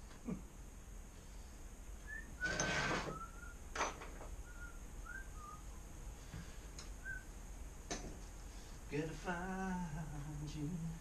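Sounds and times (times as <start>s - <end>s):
short high squeaks: 2.4s - 3.4s.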